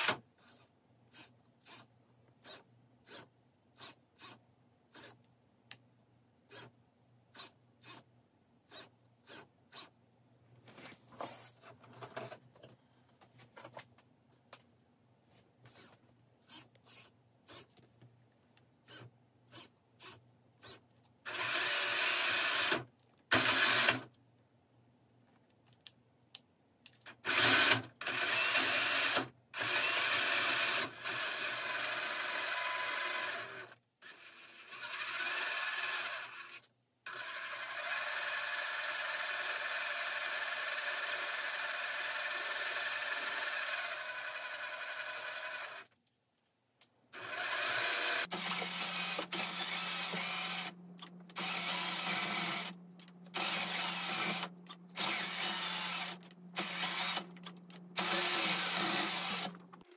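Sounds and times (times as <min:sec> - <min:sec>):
electric motor and gears whirring: 0:18.9 - 0:24.1, 0:27.2 - 0:45.9, 0:47.2 - 0:59.9.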